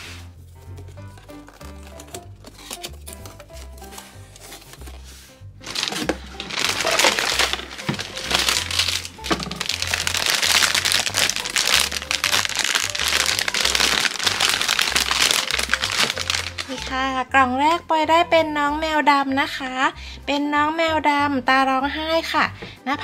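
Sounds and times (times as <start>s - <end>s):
plastic bag crinkling: 0.4s - 16.9s.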